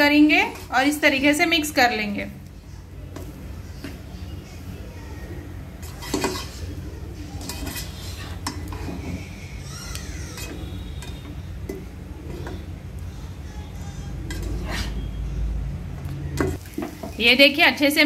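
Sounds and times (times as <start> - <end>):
spatula scraping a pan: 0.2 - 1.1, 5.7 - 12.8, 13.9 - 15.3.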